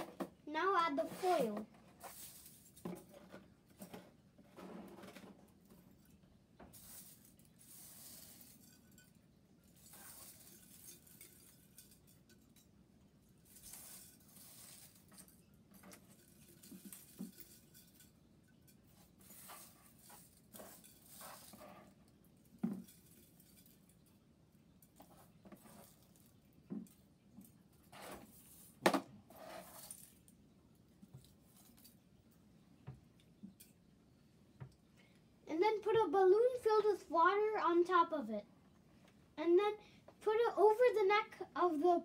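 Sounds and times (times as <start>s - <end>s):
foil clinking against glass: 6.8s - 12.7s, 13.4s - 21.8s.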